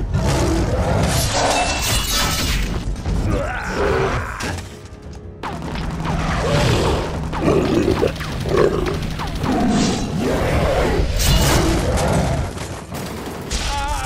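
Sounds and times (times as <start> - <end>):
background music: 2.8 - 11.9.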